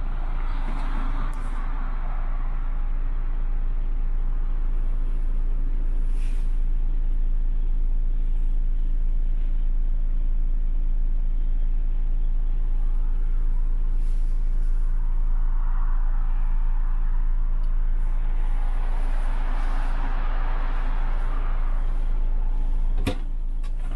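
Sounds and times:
diesel engine idling: 0:00.0 - 0:23.9.

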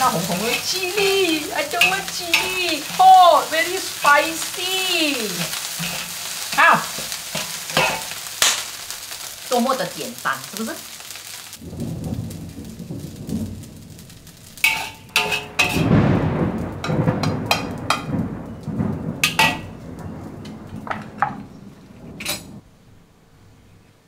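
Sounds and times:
metal spatula scraping a wok: 0:00.0 - 0:09.2, 0:14.6 - 0:16.0, 0:19.2 - 0:19.7.

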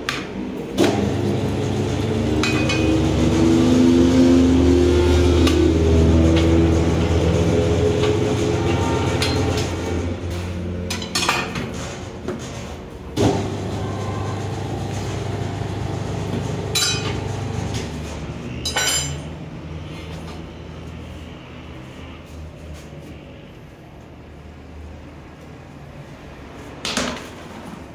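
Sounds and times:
tyre-changer machine humming: 0:00.8 - 0:10.9, 0:13.2 - 0:18.6.

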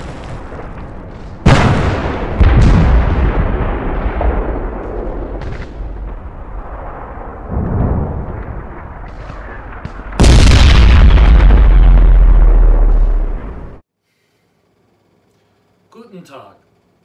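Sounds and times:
artillery booms: 0:00.0 - 0:13.8
loud blast: 0:01.4 - 0:13.8.

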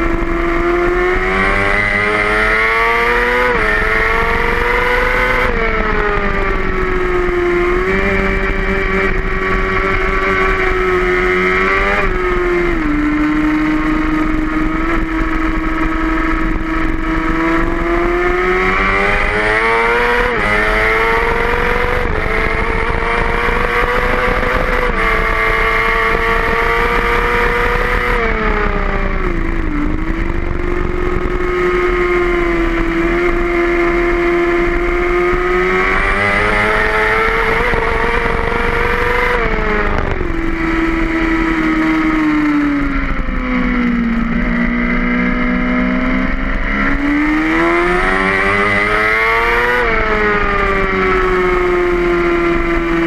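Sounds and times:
motorcycle engine at high revs: 0:00.0 - 0:53.0.

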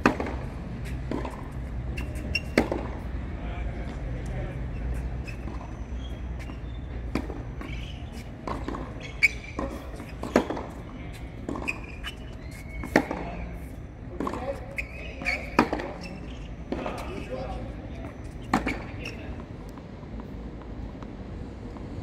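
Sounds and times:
tennis ball hitting racket: 0:00.0 - 0:03.1, 0:04.9 - 0:19.2.

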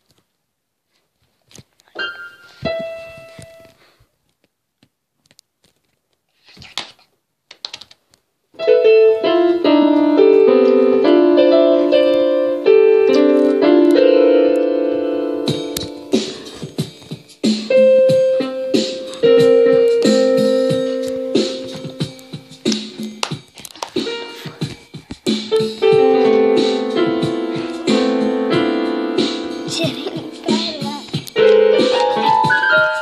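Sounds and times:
electronic keyboard piano notes: 0:08.6 - 0:22.7, 0:25.5 - 0:33.0.

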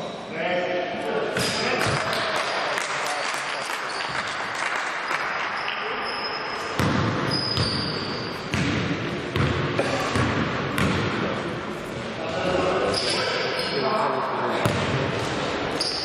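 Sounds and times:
sneakers squeaking: 0:03.9 - 0:04.4, 0:05.6 - 0:11.0, 0:12.8 - 0:13.9, 0:14.6 - 0:16.0
basketball bouncing on floor: 0:06.8 - 0:07.8, 0:08.5 - 0:11.1
players' voices: 0:12.0 - 0:15.6.

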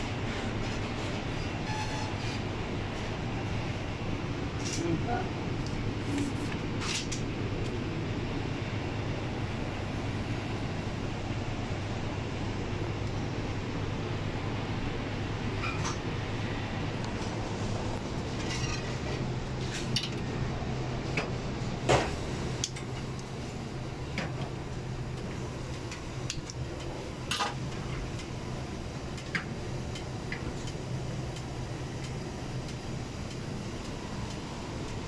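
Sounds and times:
low kitchen hum: 0:00.0 - 0:35.0.

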